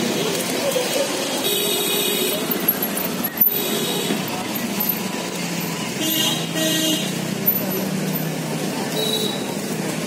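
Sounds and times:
people's voices: 0.0 - 10.0.

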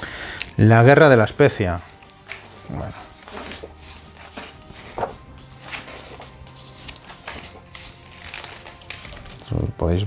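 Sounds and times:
soft background music: 0.0 - 10.0
book pages turning: 1.8 - 9.7.

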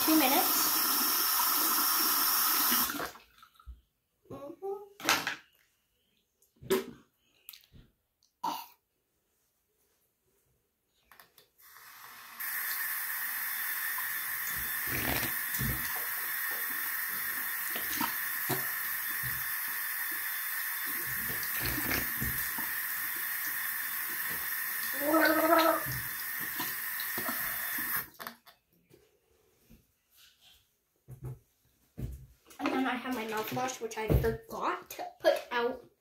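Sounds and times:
tap running into sink: 14.0 - 23.3.

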